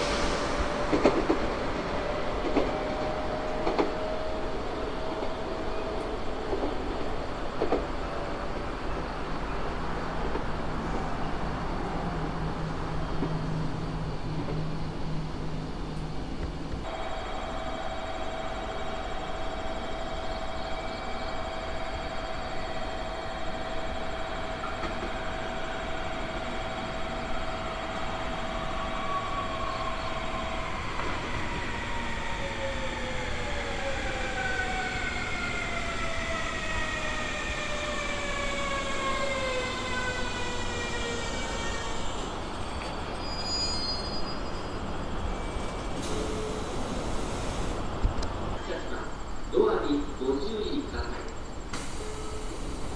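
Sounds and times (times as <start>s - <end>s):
steady train hum: 0.0s - 52.9s
train rumble: 0.0s - 52.9s
train motor whine: 16.8s - 48.4s.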